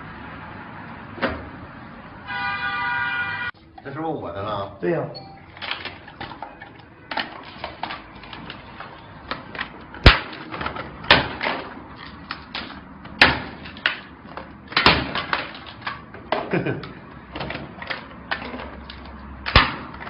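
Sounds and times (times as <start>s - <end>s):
phones and boxes being handled: 5.2s - 20.0s.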